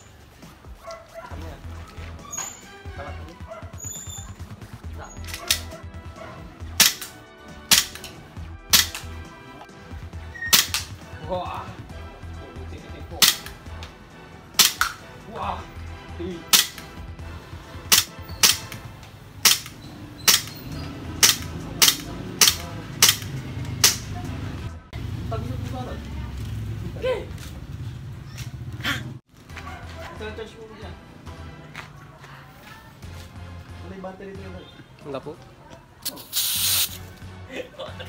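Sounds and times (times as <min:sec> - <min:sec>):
airsoft pistol shots: 0:06.8 - 0:08.0, 0:08.7 - 0:09.1, 0:10.5 - 0:11.0, 0:13.2 - 0:13.5, 0:14.6 - 0:15.0, 0:16.5 - 0:16.9, 0:17.9 - 0:18.7, 0:19.4 - 0:20.6, 0:21.2 - 0:24.1.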